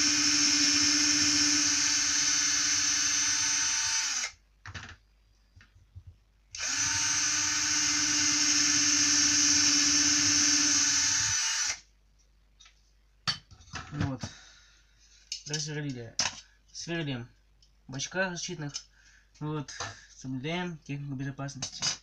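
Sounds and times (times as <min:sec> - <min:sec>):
electric drill whining: 0:00.0 - 0:04.4, 0:06.6 - 0:11.8.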